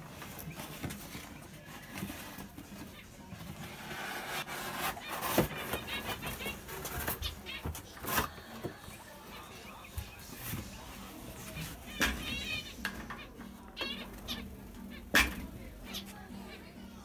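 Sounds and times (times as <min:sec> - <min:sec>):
cardboard box rustling: 0:00.0 - 0:08.4
small birds chirping: 0:04.9 - 0:17.0.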